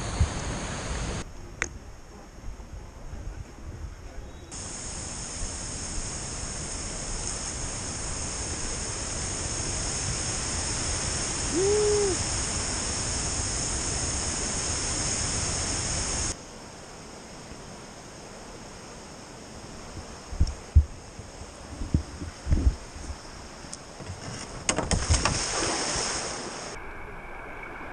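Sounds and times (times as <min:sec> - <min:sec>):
river rush: 0:00.0 - 0:01.2, 0:04.6 - 0:16.4, 0:24.1 - 0:27.9
rushing waterfall: 0:00.0 - 0:01.2, 0:04.6 - 0:16.4, 0:24.7 - 0:27.9
high insect buzz: 0:04.5 - 0:26.8
rising and falling hoot: 0:11.4 - 0:12.3.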